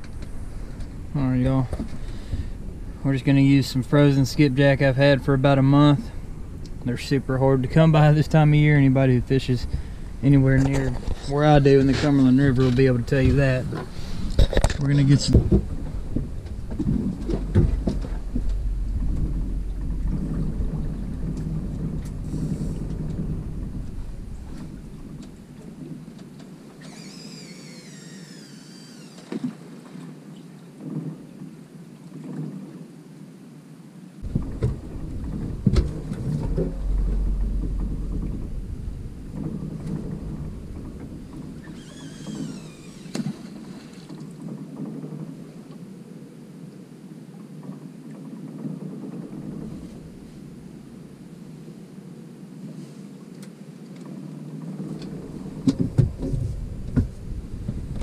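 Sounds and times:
wind buffeting microphone: 0.0s - 26.8s, 34.2s - 45.5s, 54.6s - 58.0s
water moving around hull: 0.0s - 58.0s
knocks on boat: 13.2s - 25.3s, 34.2s - 43.7s, 54.9s - 58.0s
wavering high whine: 15.0s - 29.4s, 34.2s - 43.8s.

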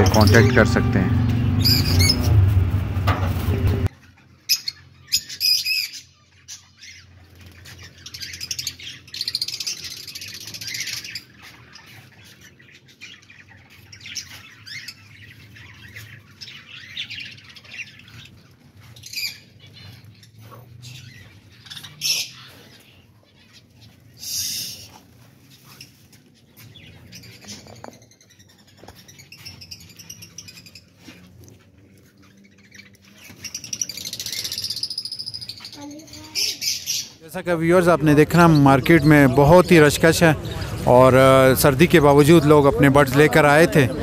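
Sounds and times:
lovebirds chirping and screeching: 0.0s - 44.0s
loud bird squawks: 21.0s - 25.0s.

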